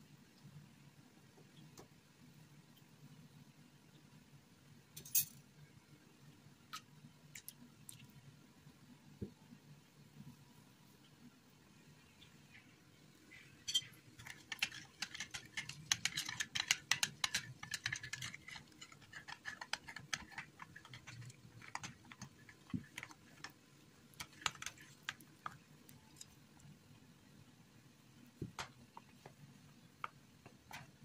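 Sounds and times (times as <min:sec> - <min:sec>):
metal spoon stirring in a bowl: 0:13.6 - 0:26.4.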